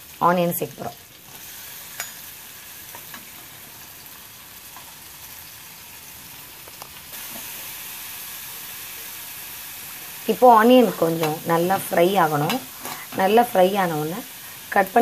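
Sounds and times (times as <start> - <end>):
onions sizzling in butter: 0.0 - 15.0
steel spatula clicking on pan: 1.9 - 2.3.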